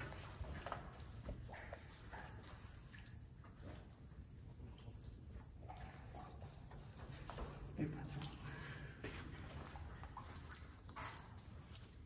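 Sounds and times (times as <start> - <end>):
crickets trilling: 0.0 - 12.0
footsteps on concrete: 8.9 - 11.2.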